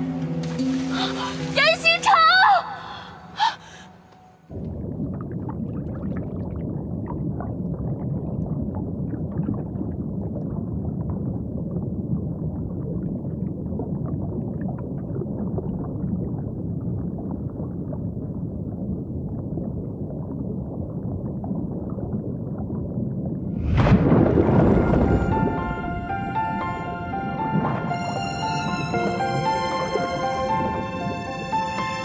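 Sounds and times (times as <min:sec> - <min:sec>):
faint crackling bubbles: 0:04.4 - 0:31.9
deep underwater rumble: 0:04.5 - 0:28.0.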